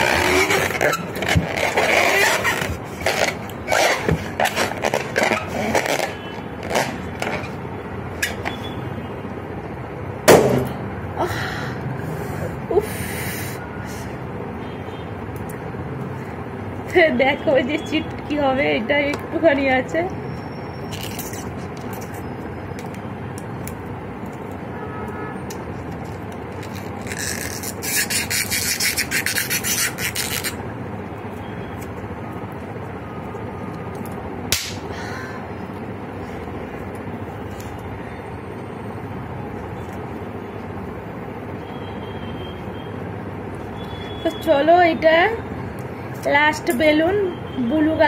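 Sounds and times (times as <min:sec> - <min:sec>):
rubber rasping crackle: 0:00.0 - 0:07.6, 0:26.0 - 0:30.6
steady background hum: 0:00.0 - 0:48.0.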